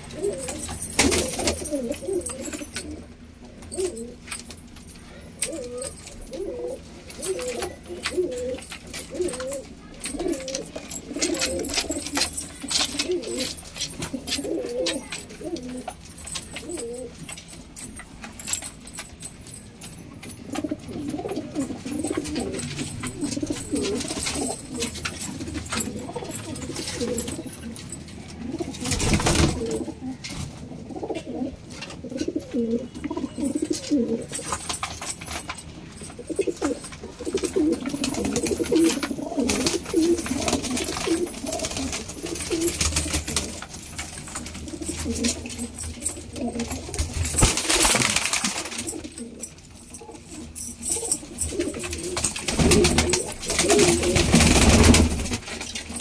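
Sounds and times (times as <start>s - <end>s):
pigeons cooing: 0.0s - 17.8s, 19.7s - 56.0s
wing flutters: 36.3s - 49.5s.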